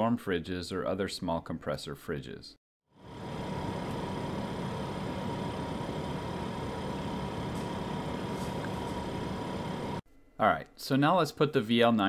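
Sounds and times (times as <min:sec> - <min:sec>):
compressor fridge humming: 0:03.0 - 0:10.4.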